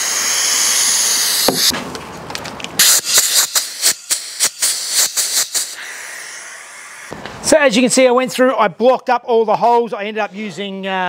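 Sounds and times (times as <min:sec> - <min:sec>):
compressed air hissing: 0:00.0 - 0:01.8, 0:02.8 - 0:07.4
spray bottle squirts: 0:00.0 - 0:01.8, 0:02.8 - 0:05.8
air fitting click: 0:01.4 - 0:05.8.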